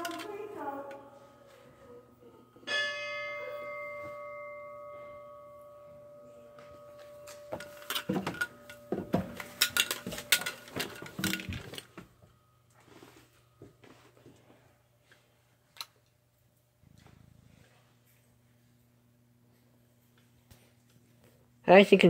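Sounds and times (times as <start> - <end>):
fire truck bell ringing: 2.3 - 11.4.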